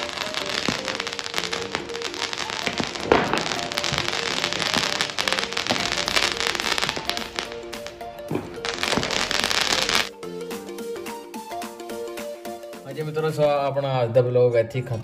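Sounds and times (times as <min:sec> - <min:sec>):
fireworks crackling and popping: 0:00.0 - 0:10.1
background music: 0:00.0 - 0:15.0.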